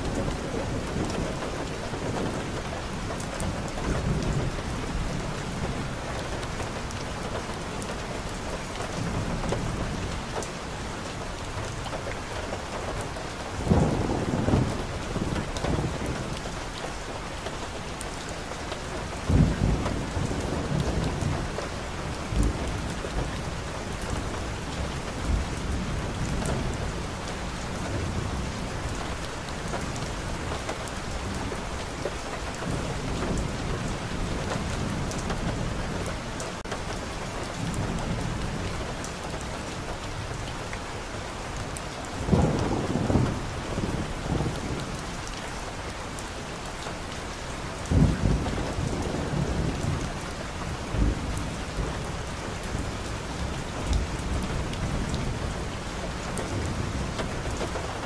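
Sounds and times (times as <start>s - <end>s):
heavy rain on car windshield: 0.0s - 58.0s
thunder rumbling: 13.5s - 16.6s, 19.2s - 31.8s, 41.4s - 45.2s, 47.7s - 58.0s
loud thunderclaps: 13.6s - 16.5s, 19.2s - 23.4s, 42.1s - 45.2s, 47.8s - 50.2s.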